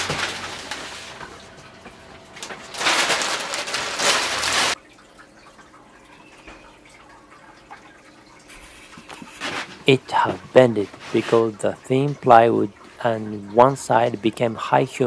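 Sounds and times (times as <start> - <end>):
plastic sheet rustling: 0.0 - 4.8, 8.6 - 9.8, 10.8 - 11.5.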